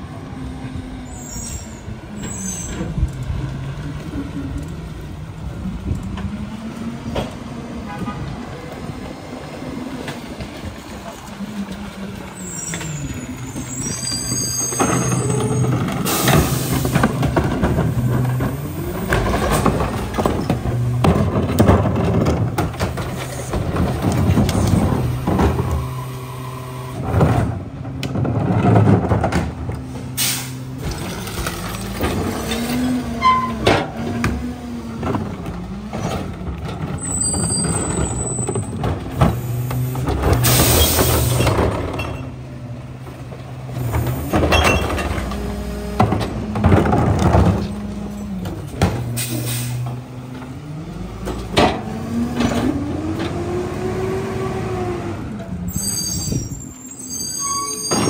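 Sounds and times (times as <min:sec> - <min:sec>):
air brake hisses: 0:30.2 - 0:30.6, 0:49.2 - 0:49.8.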